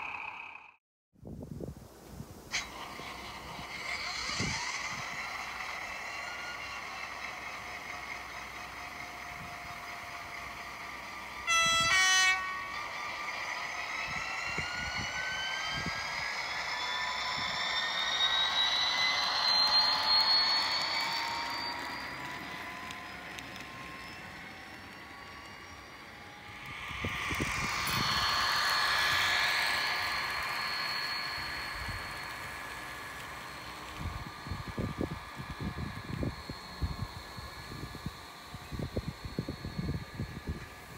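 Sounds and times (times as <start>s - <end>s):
model train mechanical whine: 0.0s - 0.8s, 2.3s - 40.9s
train horn blast: 11.4s - 12.9s.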